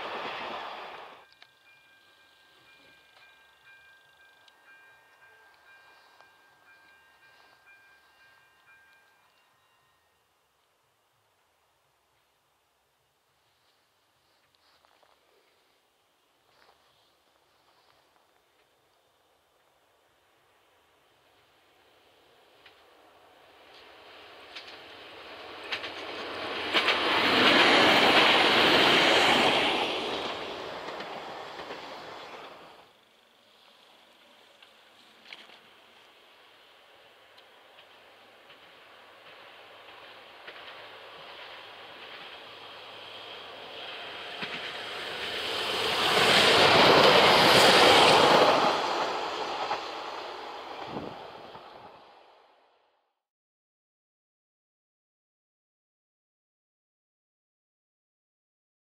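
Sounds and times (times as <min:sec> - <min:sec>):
rail joint clicks: 0:00.0 - 0:09.7, 0:22.6 - 0:33.4, 0:34.1 - 0:36.3, 0:37.2 - 0:52.0
train wheels rumbling on rails: 0:22.5 - 0:52.2.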